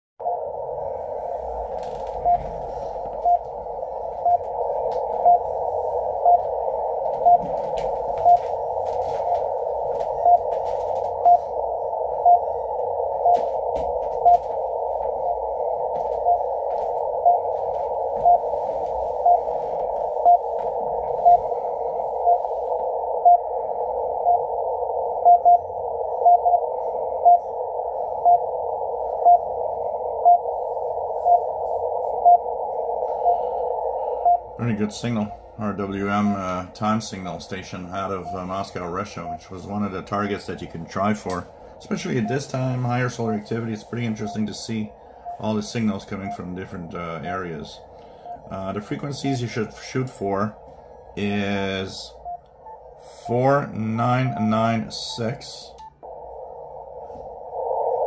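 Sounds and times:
hissing radio static: 25.8s - 50.6s, 52.9s - 58.0s.

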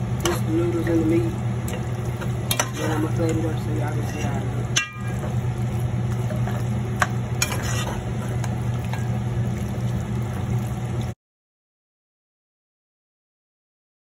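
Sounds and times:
sauce sizzling in a pan: 0.0s - 11.2s
steady low hum: 0.0s - 11.2s
utensil clicking against pan: 7.0s - 9.1s.

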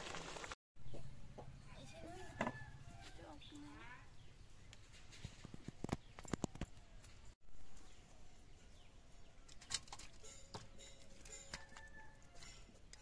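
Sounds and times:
faint birdsong: 0.8s - 13.0s
steel pan and utensils clinking: 9.6s - 13.0s.

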